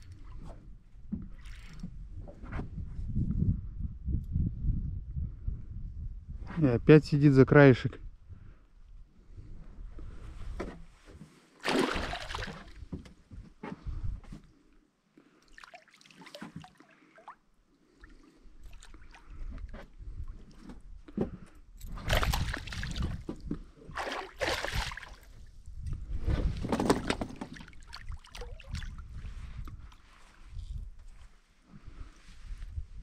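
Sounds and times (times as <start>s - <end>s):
water splashing around boat: 11.6s - 13.0s, 15.4s - 19.7s, 22.0s - 25.4s, 27.3s - 29.1s.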